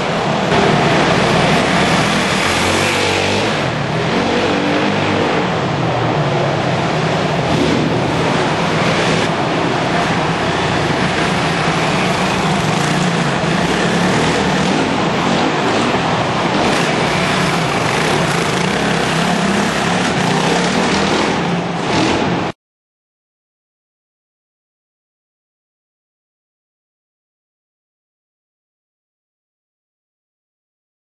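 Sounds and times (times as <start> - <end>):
motorcycle engine under load: 0.0 - 5.9, 7.2 - 22.5
steady rushing noise: 0.0 - 22.6.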